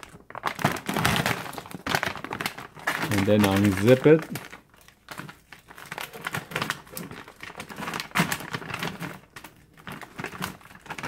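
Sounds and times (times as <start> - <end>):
plastic zipper bag pulled apart: 0.0 - 4.5.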